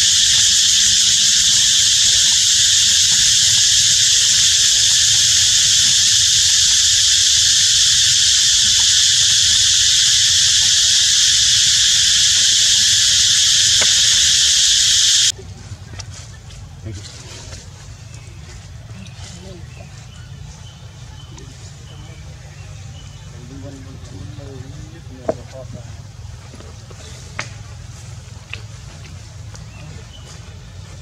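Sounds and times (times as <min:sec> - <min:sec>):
insects droning: 0:00.0 - 0:15.3.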